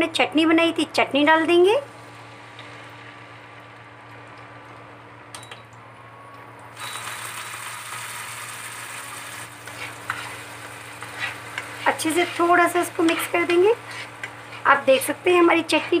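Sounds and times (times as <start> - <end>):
paste sizzling in hot oil: 6.8 - 16.0.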